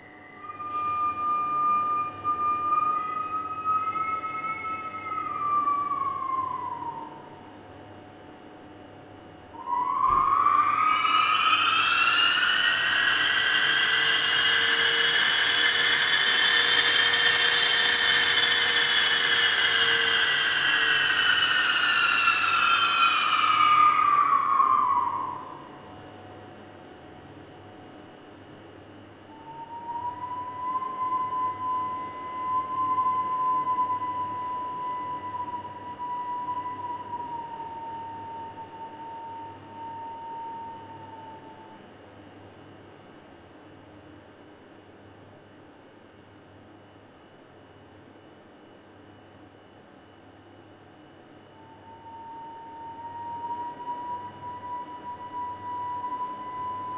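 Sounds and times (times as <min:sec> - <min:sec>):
eerie air whistling: 0:00.0 - 0:42.7, 0:49.2 - 0:56.9
ventilation fan hum: 0:00.0 - 0:43.6.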